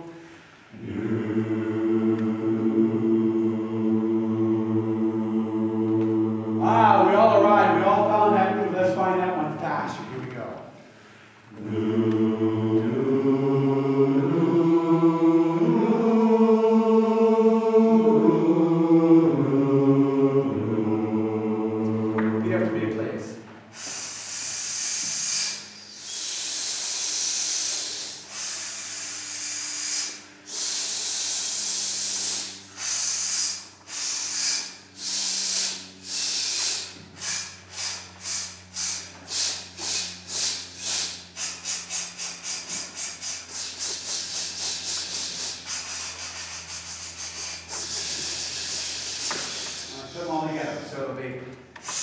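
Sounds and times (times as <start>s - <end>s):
men's chorus hissing in pulses: 23.6s - 51.2s, 51.8s - 52.0s.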